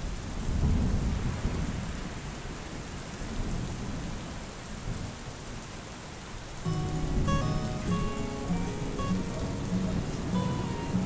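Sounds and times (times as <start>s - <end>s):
steady rain: 0.0s - 11.0s
thunder rumbling: 6.7s - 11.0s.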